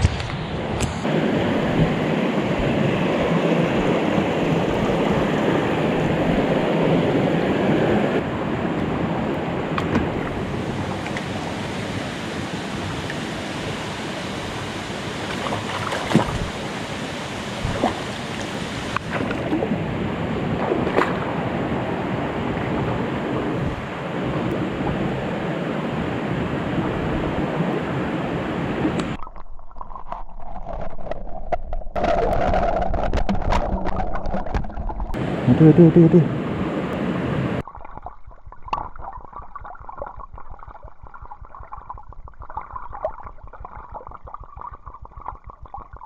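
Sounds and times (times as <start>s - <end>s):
river water rushing: 0.6s - 29.2s, 35.2s - 37.6s
sharp knocks or splashes: 15.3s - 16.5s, 20.6s - 21.3s, 38.6s - 39.3s.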